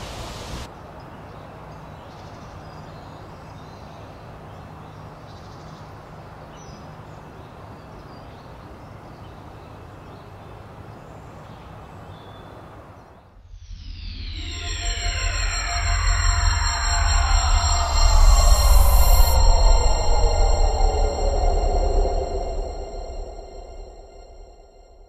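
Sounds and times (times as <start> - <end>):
steady background hiss: 0.0 - 23.9
low steady hum: 13.4 - 25.0.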